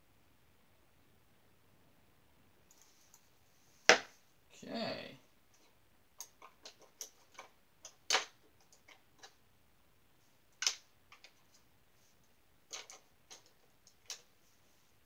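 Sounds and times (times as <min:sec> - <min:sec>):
brushes and paint tubes clicking: 0:05.6 - 0:09.4, 0:10.6 - 0:11.6, 0:12.7 - 0:14.3.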